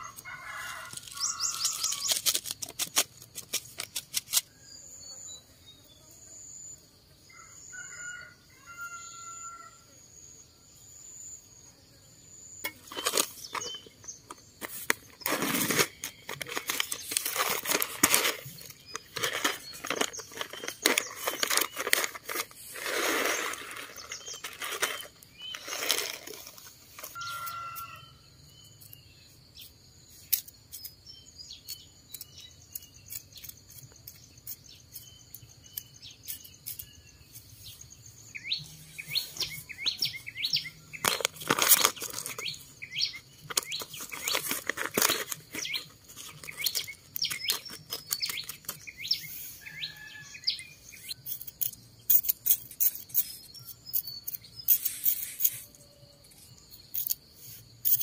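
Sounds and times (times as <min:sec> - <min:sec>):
sickle scraping stony soil: 0:00.0 - 0:04.5, 0:12.6 - 0:28.0, 0:38.8 - 0:50.2
insects droning: 0:00.0 - 0:58.0
birds chirping: 0:12.3 - 0:29.7, 0:30.8 - 0:51.2
plastic packet crinkling: 0:12.8 - 0:27.2, 0:41.0 - 0:42.6, 0:43.4 - 0:48.8.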